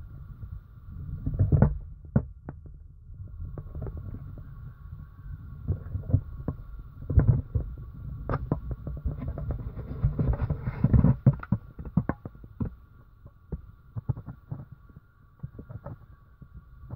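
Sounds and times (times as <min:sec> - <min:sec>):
faint steady whine: 0:00.0 - 0:16.9.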